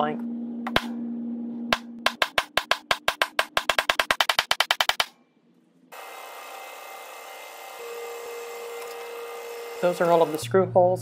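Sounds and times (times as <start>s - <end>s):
drill press running: 5.9s - 10.4s.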